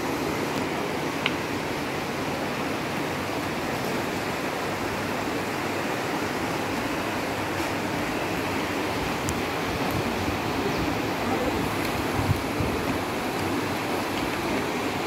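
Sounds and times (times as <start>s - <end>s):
river rushing over rocks: 0.0s - 15.0s.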